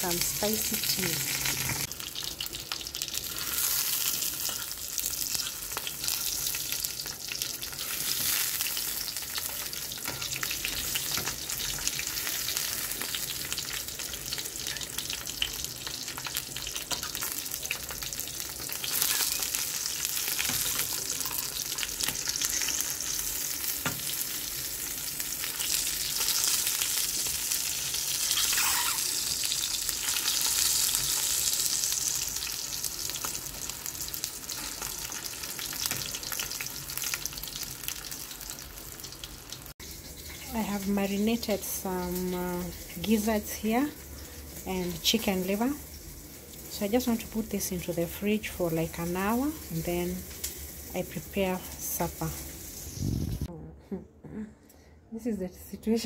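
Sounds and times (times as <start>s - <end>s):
sausages sizzling in a frying pan: 0.0s - 53.5s
fork turning sausages in pan: 3.1s - 24.6s.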